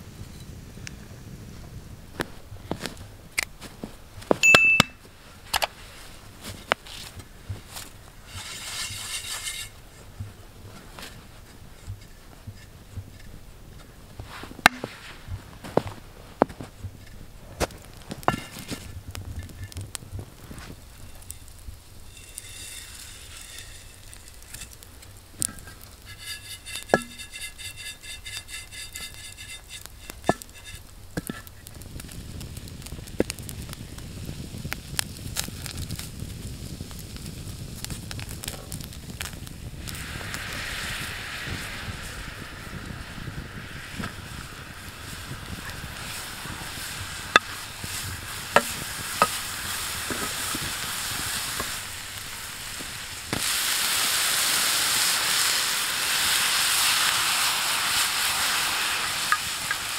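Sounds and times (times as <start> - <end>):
snow scrubbed inside pan: 2.2 - 32.2, 37.2 - 59.9
metallic pan clink: 4.4 - 5.0
granules sliding in iron skillet: 5.6 - 13.3, 14.2 - 19.8, 20.4 - 31.5, 39.8 - 59.9
footsteps crunching in snow: 5.8 - 9.6.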